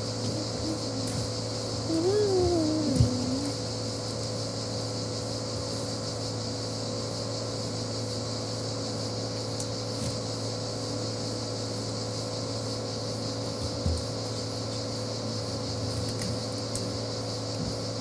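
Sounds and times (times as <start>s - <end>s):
high hiss: 0.0s - 3.8s
mechanical hum: 0.0s - 18.0s.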